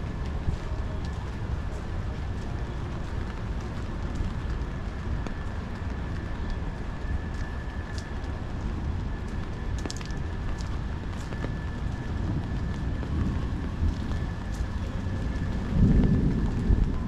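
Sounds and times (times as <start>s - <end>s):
low rumble: 0.0s - 17.0s
rain falling: 0.0s - 17.0s.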